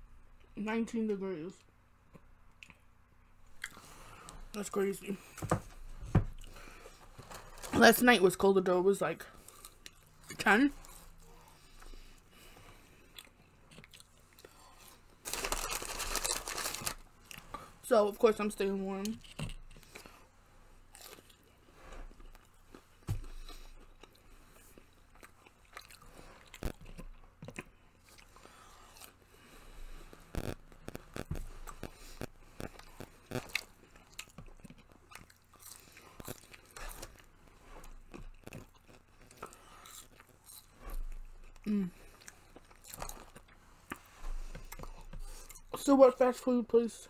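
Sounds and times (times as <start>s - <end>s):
chewing and biting food: 9.4s - 17.6s, 20.9s - 45.7s
short crunches: 29.0s - 34.5s.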